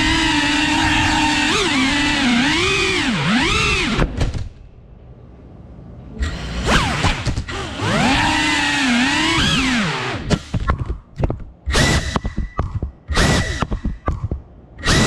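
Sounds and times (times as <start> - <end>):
drone propellers whining: 0.0 - 4.2, 6.1 - 10.9, 11.6 - 15.0
sharp knocks: 10.3 - 14.5.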